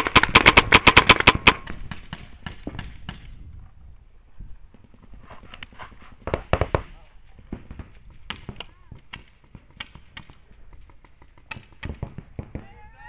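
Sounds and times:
paintball marker firing rapidly: 0:00.0 - 0:03.3
paintball fire pops: 0:00.0 - 0:03.4, 0:04.7 - 0:12.8.

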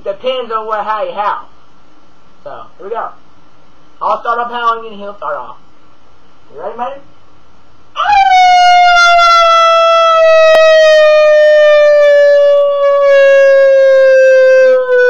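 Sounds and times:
person howling: 0:08.0 - 0:15.0.

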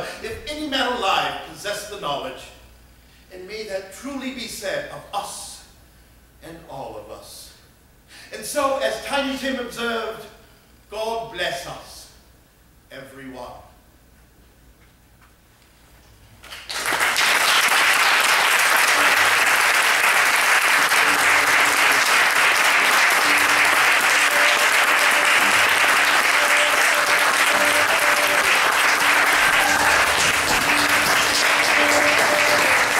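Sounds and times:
audience applause: 0:16.4 - 0:32.9.

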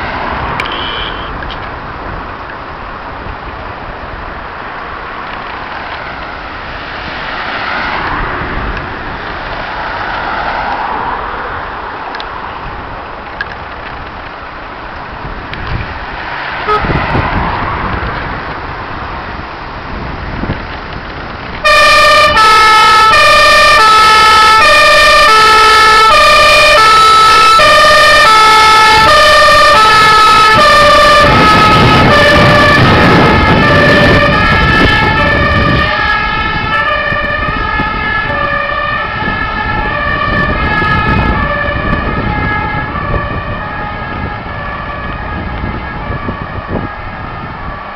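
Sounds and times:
two-tone siren: 0:00.6 - 0:01.4, 0:16.6 - 0:17.3, 0:21.6 - 0:47.9
fire truck engine running: 0:16.7 - 0:47.9.

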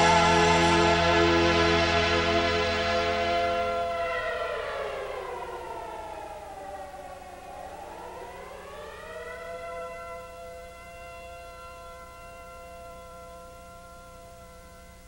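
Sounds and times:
air raid siren wailing: 0:00.0 - 0:15.0.

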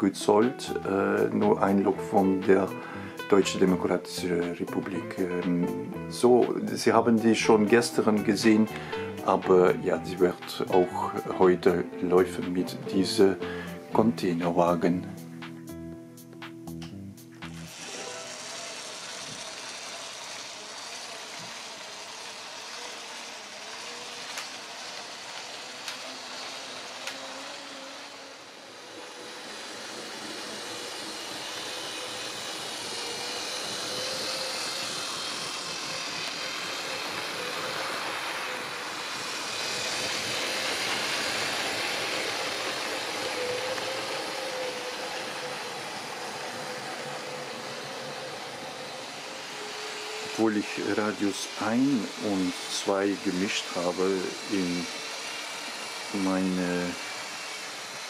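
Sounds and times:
model train motor whine: 0:00.0 - 0:58.0
wheels rumbling on rails: 0:17.6 - 0:58.0.

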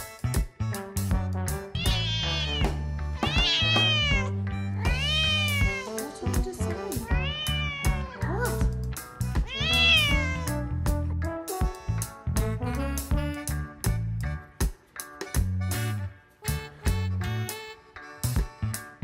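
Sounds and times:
background music with steady beat: 0:00.0 - 0:19.0
cat meowing: 0:01.8 - 0:06.0, 0:07.0 - 0:08.6, 0:09.4 - 0:10.6.

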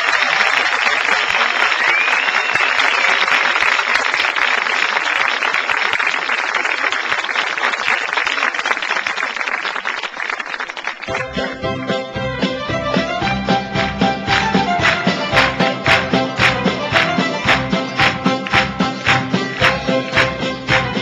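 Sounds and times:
studio audience applauding: 0:00.0 - 0:11.9, 0:13.7 - 0:21.0
music with a beat: 0:11.1 - 0:21.0.

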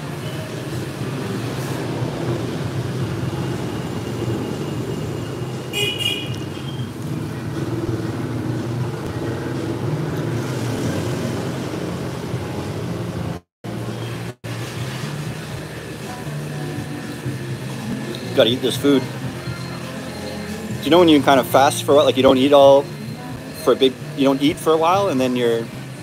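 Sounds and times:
street traffic rumble: 0:00.0 - 0:26.0.

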